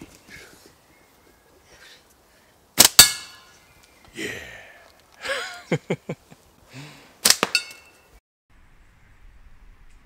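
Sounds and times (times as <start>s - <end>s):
slingshot cracks: 2.8s - 3.5s, 7.2s - 7.8s
man saying yeah: 4.2s - 4.8s
laughter: 5.2s - 6.4s.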